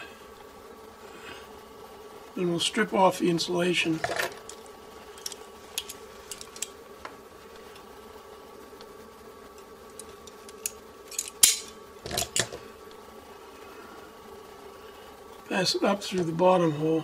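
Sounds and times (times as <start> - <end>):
wire stripper snapping: 4.1 - 6.8, 9.9 - 12.6
wire stripper clicks: 9.9 - 12.6.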